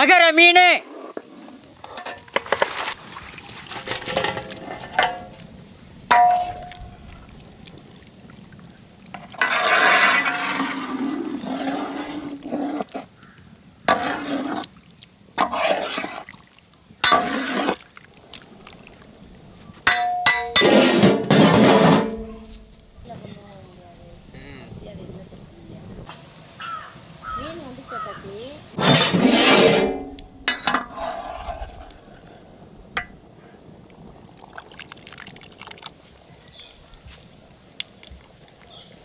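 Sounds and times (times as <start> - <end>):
metal pots clanking: 1.8 - 2.8, 3.7 - 5.4, 6.1 - 6.9, 17.0 - 17.8, 19.8 - 22.6, 28.8 - 31.2
splashing and pouring: 2.2 - 13.2, 13.8 - 22.2, 33.9 - 39.0.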